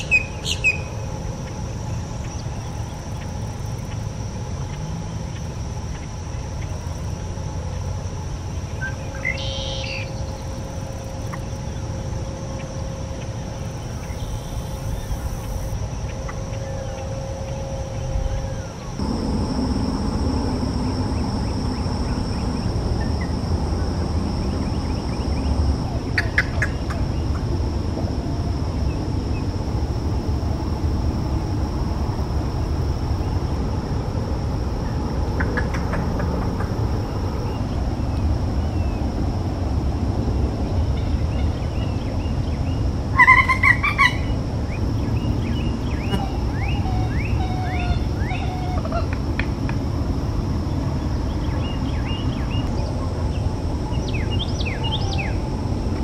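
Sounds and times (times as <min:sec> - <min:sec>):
high insect drone: 0:00.0 - 0:56.0
low rumble: 0:19.0 - 0:40.9
bird call: 0:45.9 - 0:49.2.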